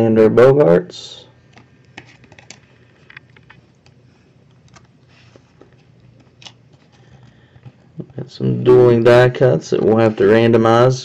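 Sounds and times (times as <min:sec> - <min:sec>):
low steady hum: 0:00.0 - 0:11.0
cards clicking being shuffled: 0:01.6 - 0:03.6, 0:05.6 - 0:08.1.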